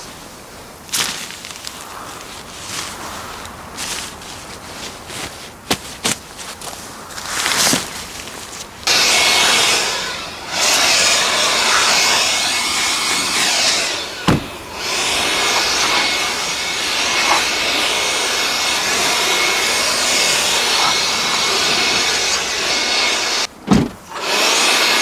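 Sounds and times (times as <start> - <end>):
faint steady whine: 0.0 - 24.2
electric blower air rush: 6.0 - 25.0.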